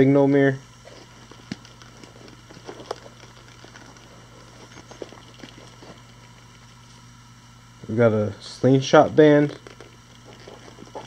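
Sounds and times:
steady low hum: 0.0s - 11.0s
rustling of small items: 0.8s - 7.0s, 9.5s - 11.0s.

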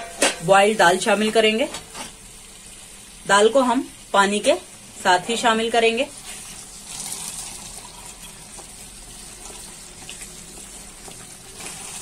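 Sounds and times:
spatula stirring: 8.5s - 12.0s.

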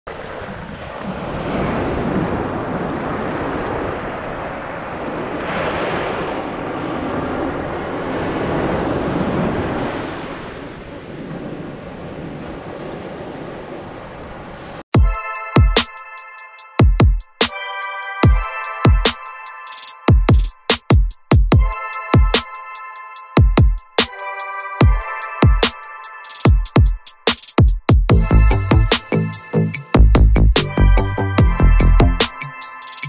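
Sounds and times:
wind on microphone: 0.1s - 14.8s
ocean surf breaking: 0.1s - 14.9s.

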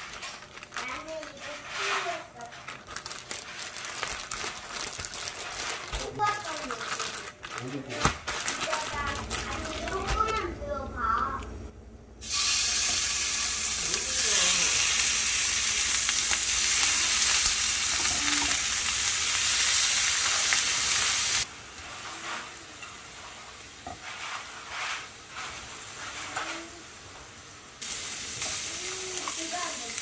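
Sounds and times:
steaks sizzling in a frying pan: 12.2s - 21.5s, 27.8s - 30.0s.

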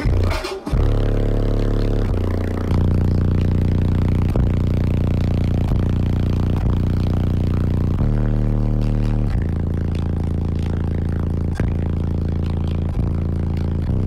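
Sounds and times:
subwoofer deep bass notes: 0.0s - 14.0s.

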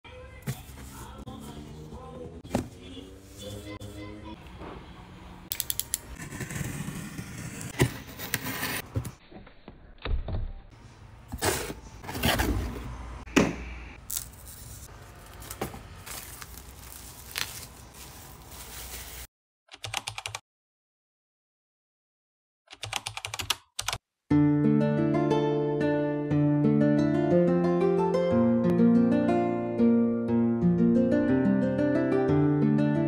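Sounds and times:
cardboard rustling and scraping: 6.2s - 9.2s, 11.4s - 12.8s, 14.4s - 19.3s.

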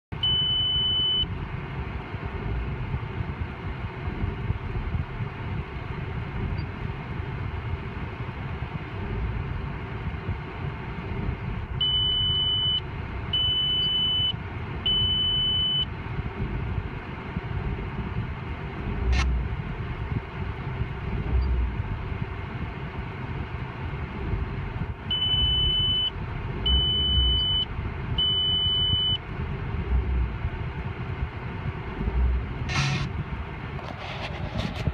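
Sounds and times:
diesel engine idling: 0.1s - 34.9s
sharp click: 32.7s - 33.1s.

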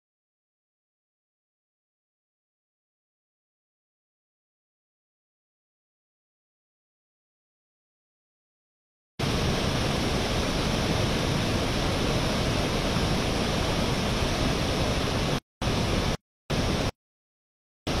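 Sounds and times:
loud even hiss: 9.2s - 16.9s.

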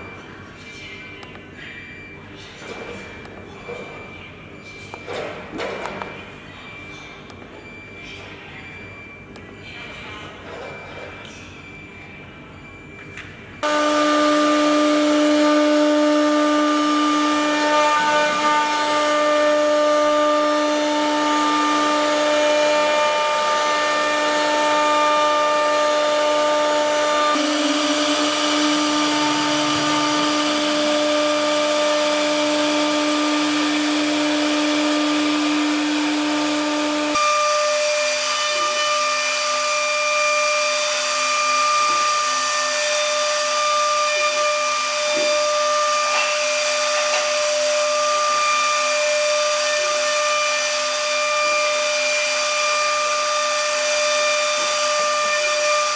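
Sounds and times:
router spindle motor whine: 13.6s - 55.9s.

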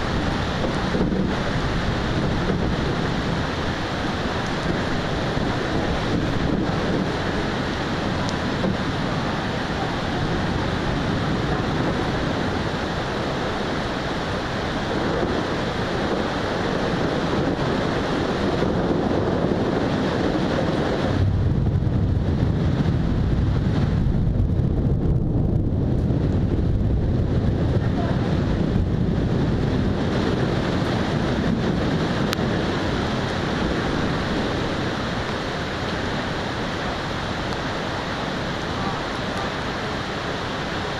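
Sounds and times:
wind and rain rushing: 0.0s - 40.9s
deep low rumble: 18.6s - 38.0s.

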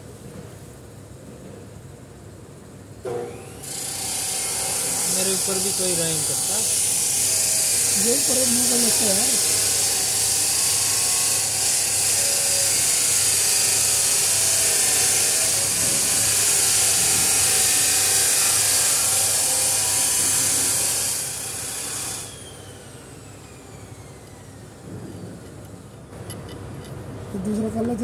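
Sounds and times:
pneumatic tool hissing and whirring: 3.3s - 25.6s.

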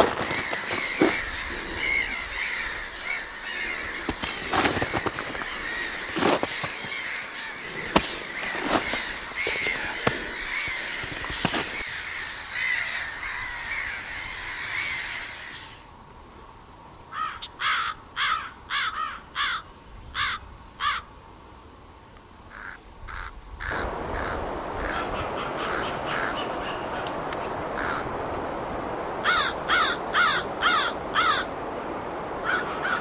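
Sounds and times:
sharp clicks and crunches: 0.0s - 1.3s, 4.1s - 5.5s, 6.1s - 7.0s, 7.6s - 11.8s
harsh crow-like bird calling: 0.0s - 15.8s, 17.1s - 21.1s, 22.5s - 28.3s, 29.2s - 31.6s, 32.4s - 33.0s.

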